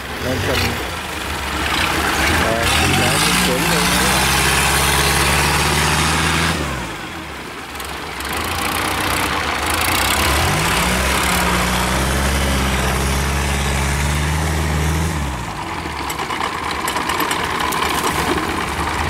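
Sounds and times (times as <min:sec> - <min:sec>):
boat engine running: 0:00.0 - 0:19.0.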